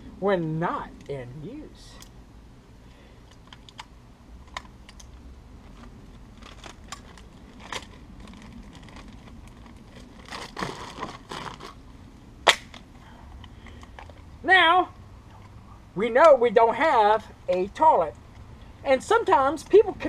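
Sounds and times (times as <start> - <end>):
plastic bag crinkling: 5.6 - 11.9.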